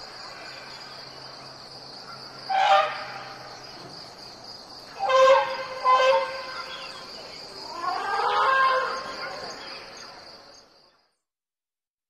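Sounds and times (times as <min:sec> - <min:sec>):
insects buzzing: 0:00.0 - 0:11.0
elephants trumpeting: 0:07.7 - 0:09.4.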